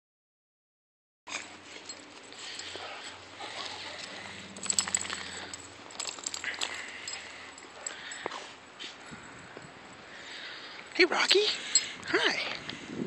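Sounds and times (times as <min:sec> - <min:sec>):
dogs play-wrestling: 0:01.3 - 0:09.1.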